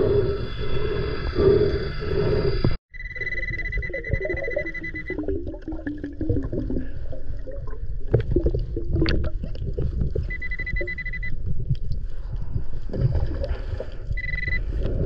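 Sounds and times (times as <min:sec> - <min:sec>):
metal detector beep: 0:02.9 - 0:05.2, 0:10.3 - 0:11.3, 0:14.2 - 0:14.7
underwater scraping and knocking: 0:03.5 - 0:15.0.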